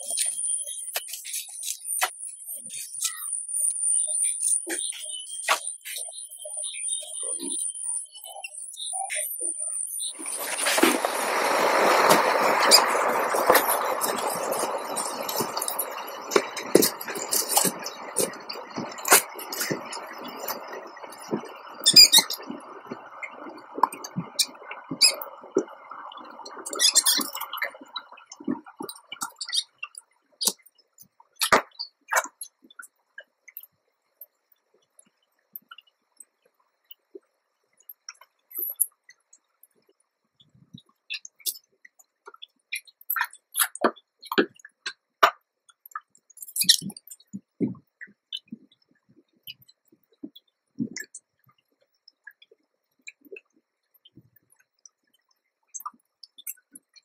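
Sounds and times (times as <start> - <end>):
paper rustling and crinkling: 10.2 - 18.3.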